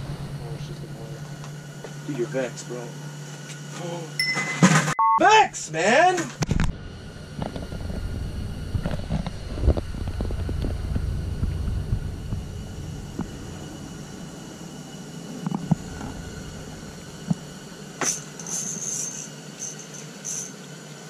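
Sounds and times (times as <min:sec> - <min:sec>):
rumbling handling noise: 0:06.3 - 0:20.5
high-pitched buzzing: 0:07.0 - 0:20.7.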